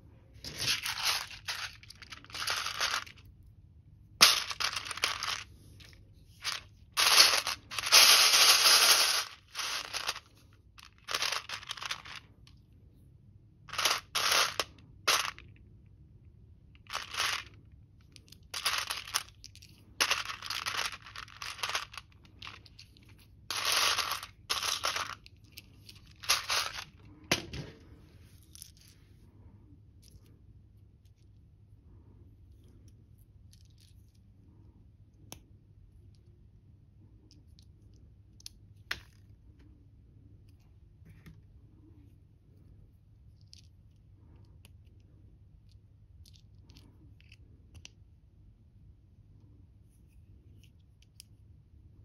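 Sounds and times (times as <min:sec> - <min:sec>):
plastic toy bricks clattering: 0:00.4 - 0:03.2, 0:04.2 - 0:12.3, 0:13.7 - 0:15.5, 0:16.8 - 0:27.7.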